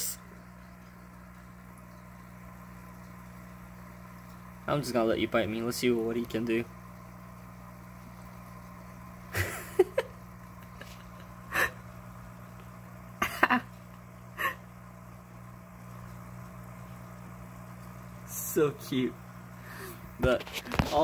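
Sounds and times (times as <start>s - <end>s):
low steady hum: 0.0s - 21.0s
person's stifled chuckles: 14.4s - 14.6s.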